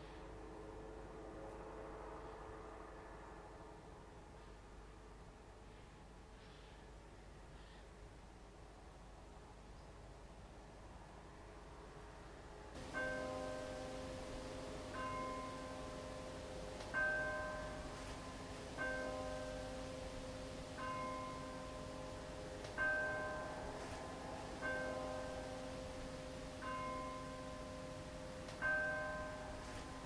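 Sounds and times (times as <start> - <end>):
bells ringing: 12.8 - 30.0.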